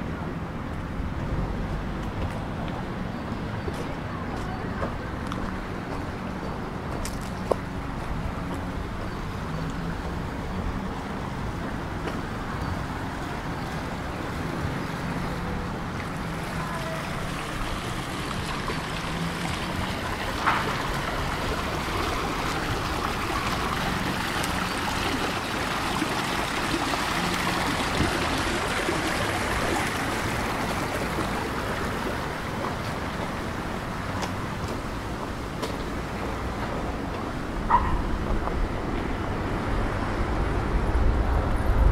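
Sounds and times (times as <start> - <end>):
fountain splashing into basin: 14.4 - 34.2.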